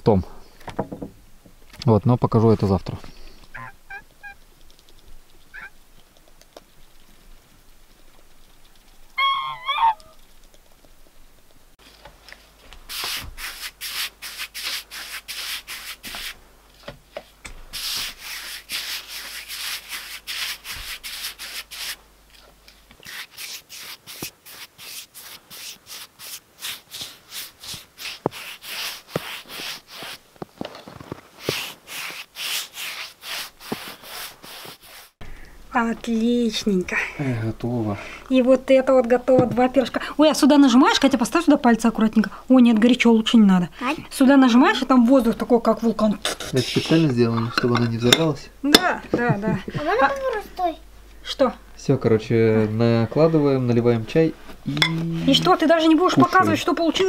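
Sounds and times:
bird call: 0:03.5 - 0:04.4, 0:05.5 - 0:05.7, 0:09.2 - 0:10.2
paintbrush scrubbing wood: 0:12.9 - 0:16.4, 0:17.7 - 0:22.0, 0:23.0 - 0:30.2, 0:31.4 - 0:35.2.

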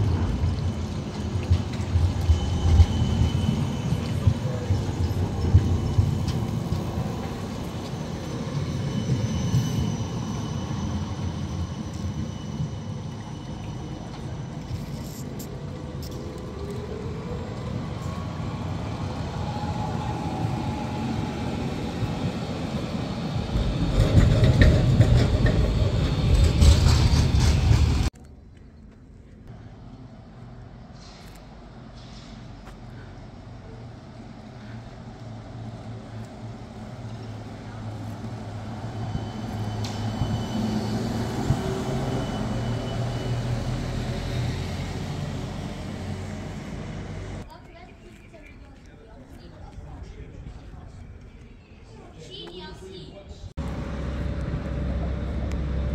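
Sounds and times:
trolleybus hum passing: 0:00.0 - 0:28.1, 0:29.6 - 0:47.5, 0:53.3 - 0:55.9
tram wheels rumbling on rails: 0:00.0 - 0:28.2, 0:29.4 - 0:47.5, 0:53.6 - 0:55.9.

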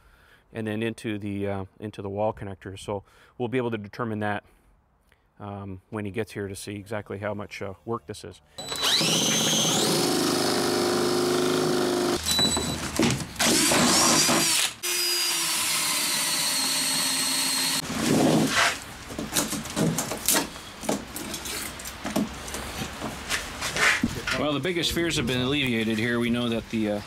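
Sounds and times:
power drill boring through wood: 0:08.6 - 0:12.7, 0:13.4 - 0:18.5
knocks and handling noises: 0:17.8 - 0:24.4.

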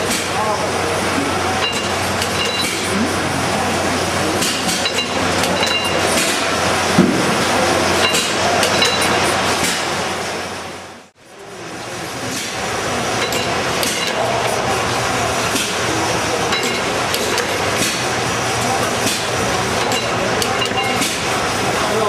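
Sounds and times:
machinery clattering and clinking: 0:00.0 - 0:22.0
thump: 0:07.0 - 0:07.3.

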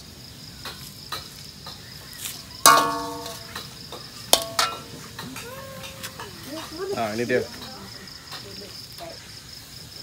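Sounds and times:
crickets chirping: 0:00.0 - 0:10.0
sharp ringing clink: 0:02.7 - 0:03.6.

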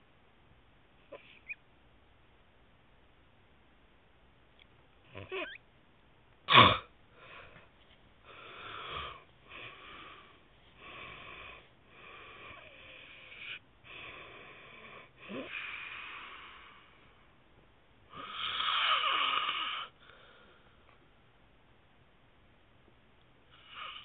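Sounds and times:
man snoring: 0:18.2 - 0:19.9.

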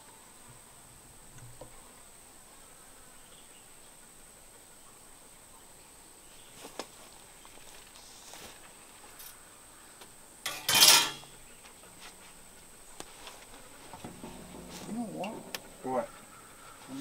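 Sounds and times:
light metallic clinks and taps: 0:10.5 - 0:11.4.

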